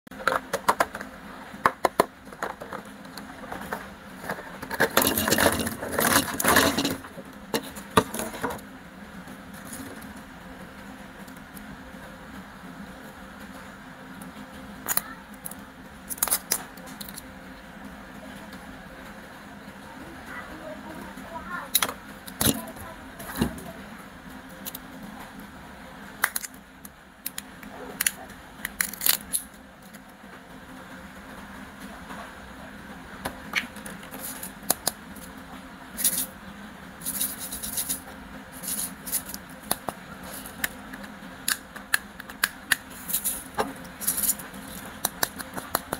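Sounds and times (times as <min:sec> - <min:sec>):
steady low hum: 0:00.1 - 0:45.9
plastic rattling clatter: 0:01.8 - 0:08.6.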